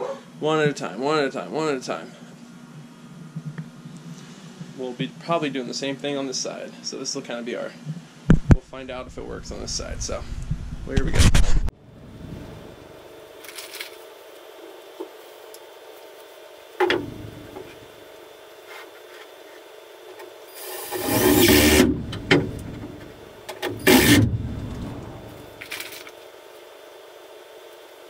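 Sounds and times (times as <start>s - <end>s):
cordless drill driving screws: 23.6s - 24.4s.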